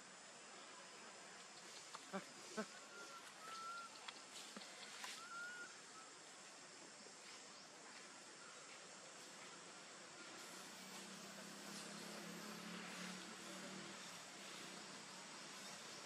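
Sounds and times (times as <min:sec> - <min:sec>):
faint forest background: 0:00.0 - 0:16.0
bird whistling held notes: 0:05.1 - 0:05.8.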